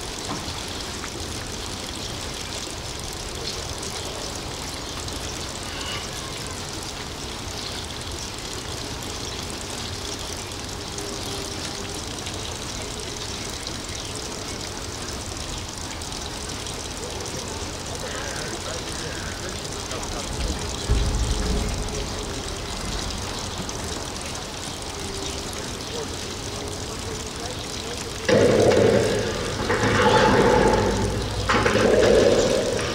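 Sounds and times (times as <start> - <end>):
distant construction machinery: 8.5 - 32.9.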